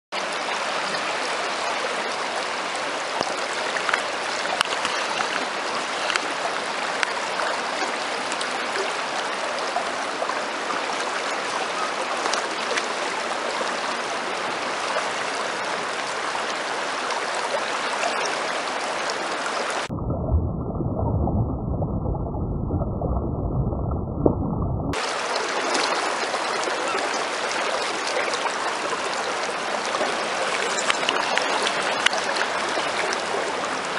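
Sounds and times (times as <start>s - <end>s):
river current rushing: 24.9s - 33.9s.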